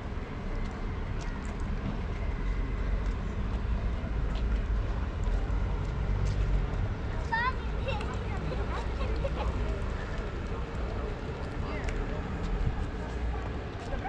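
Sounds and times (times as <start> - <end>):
low outdoor rumble: 0.0 - 14.0.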